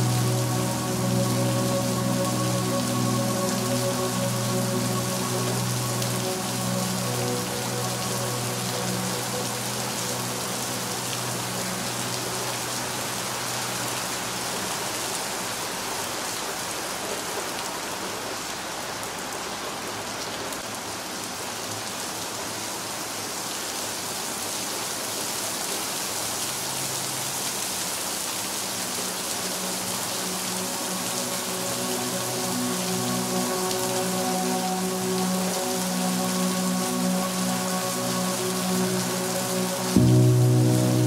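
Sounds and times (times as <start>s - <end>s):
low ambient music tone: 0.0s - 15.9s, 28.7s - 41.0s
steady rain: 0.0s - 41.0s.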